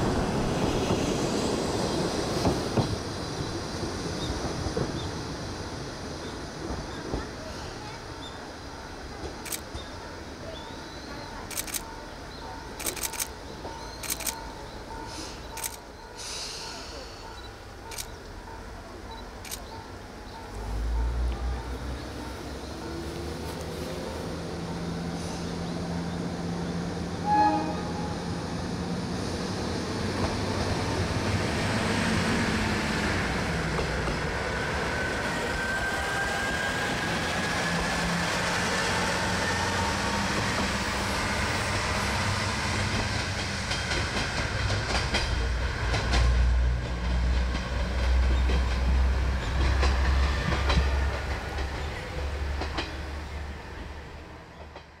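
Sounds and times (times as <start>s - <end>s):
diesel railcar engine and wheels: 0.0s - 55.0s
low train rumble: 0.0s - 55.0s
train horn toot: 27.2s - 28.3s.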